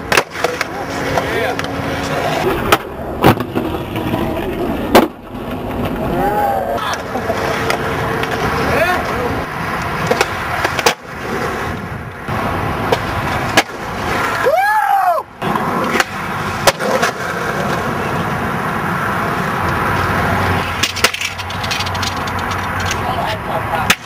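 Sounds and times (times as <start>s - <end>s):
skateboard clacks: 0.0s - 14.4s, 15.4s - 18.4s, 19.6s - 24.0s
skateboard wheels on concrete: 0.0s - 24.0s
rising and falling tone: 0.8s - 8.7s.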